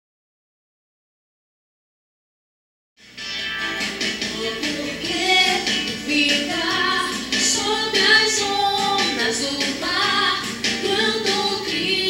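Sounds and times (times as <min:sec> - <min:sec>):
woman singing a song: 0:04.3 - 0:12.0.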